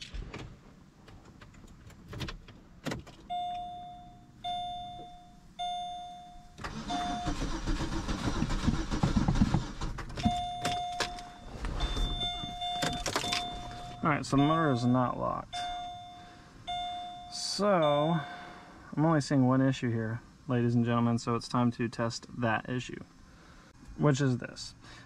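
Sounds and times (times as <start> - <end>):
car warning chime dinging: 3.2 - 8.0, 10.2 - 18.6
starter cranking engine: 6.6 - 10.4.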